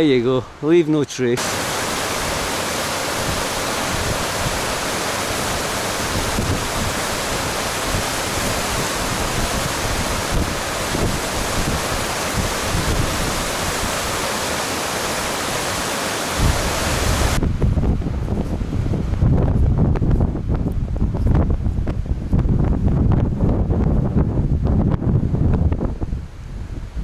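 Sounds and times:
stream rushing over boulders: 1.4 - 19.3
wind rumble on microphone: 3.1 - 14.2, 16.3 - 27.0.

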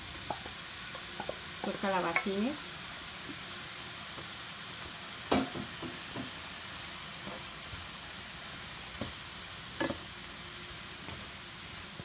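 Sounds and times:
vegetables sizzling in a pan: 0.0 - 12.0
wooden spoon knocking on pan: 5.3 - 6.4.

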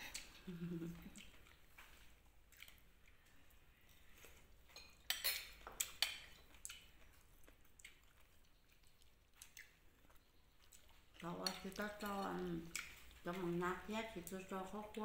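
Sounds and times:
metal spoon clinking on ceramic: 4.8 - 6.3.

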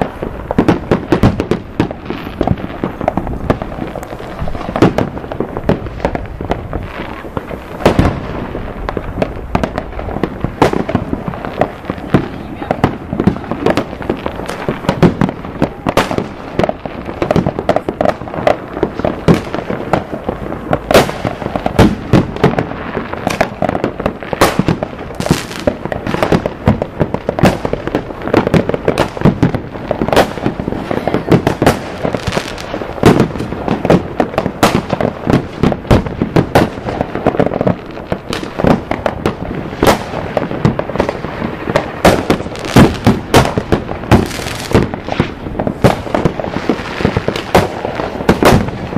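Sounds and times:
fireworks bangs and crackling: 0.0 - 48.9
fireworks booms: 0.0 - 48.9.

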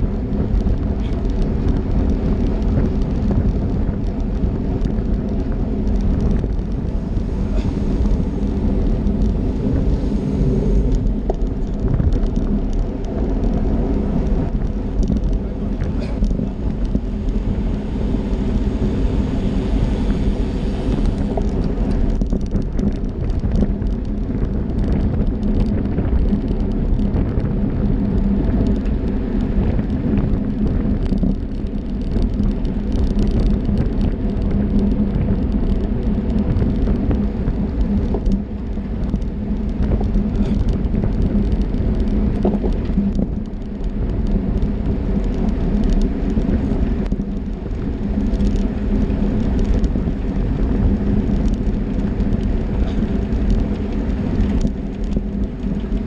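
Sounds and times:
tyres humming on tarmac: 0.0 - 56.0
wind rumble on microphone: 0.0 - 56.0
small clicks: 20.9 - 56.0.

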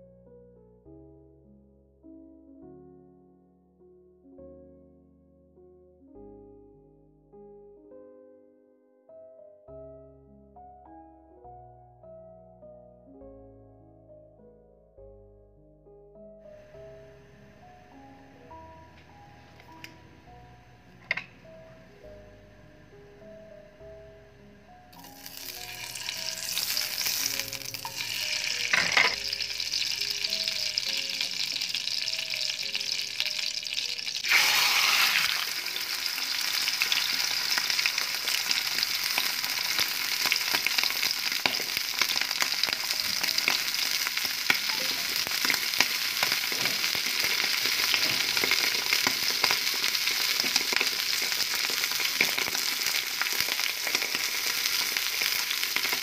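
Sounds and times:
fat sizzling in pan: 24.9 - 56.0
frying with crackling pops: 24.9 - 56.0.

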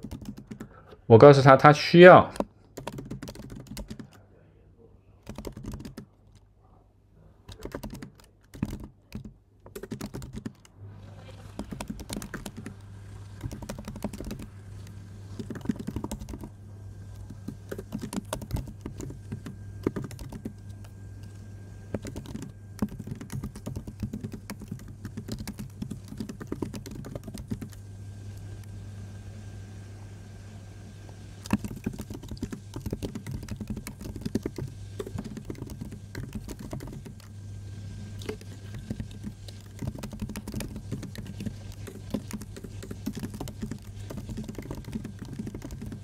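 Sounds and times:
computer keyboard typing: 0.0 - 0.8, 2.3 - 4.2, 5.2 - 6.5, 7.5 - 10.8, 11.4 - 16.5, 17.2 - 27.8, 31.4 - 37.3, 38.2 - 46.0
low steady hum: 0.0 - 46.0.

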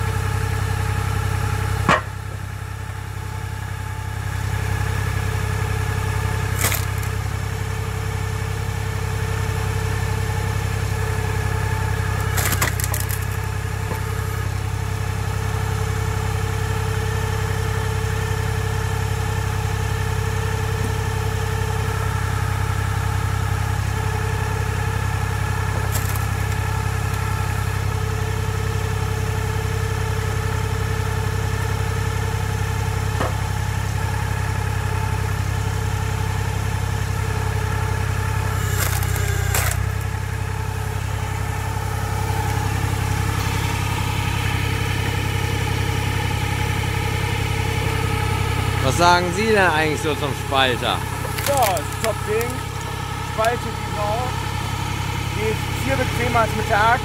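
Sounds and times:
tractor engine running: 0.0 - 57.0
logs cracking as split: 6.4 - 7.2, 12.2 - 14.1, 25.8 - 27.6, 38.5 - 40.2, 51.2 - 52.9.

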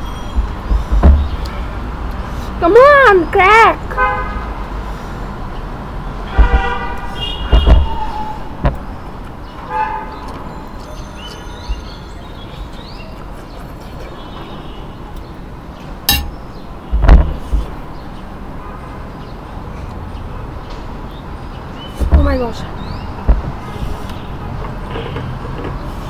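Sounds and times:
traffic hum: 0.0 - 26.0
low thumps: 0.2 - 1.5, 6.3 - 8.9, 16.1 - 17.9, 23.2 - 24.0
vehicle horns honking: 4.0 - 4.6, 6.3 - 8.4.

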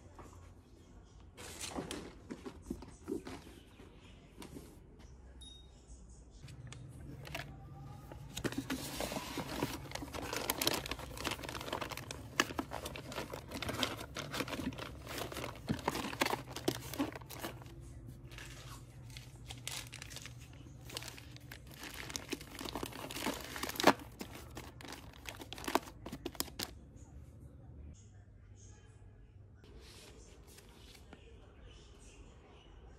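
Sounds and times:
packaging crinkling: 7.1 - 26.7.

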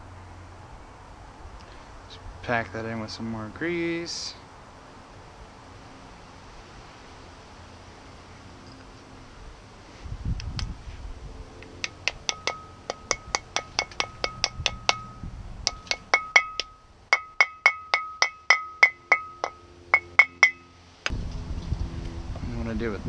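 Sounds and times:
hammer tapping metal: 11.7 - 20.7
steel disc ringing: 11.8 - 20.8.

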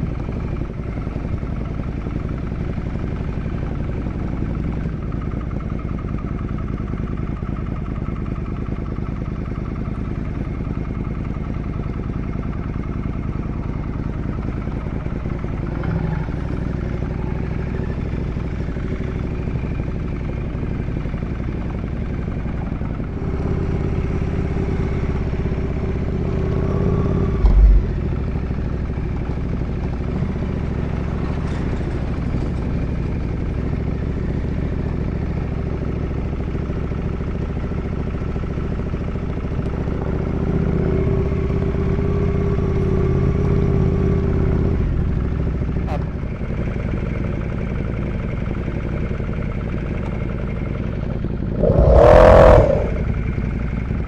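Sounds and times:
motorcycle engine running: 0.0 - 54.0
brief low thump: 27.4 - 28.0.

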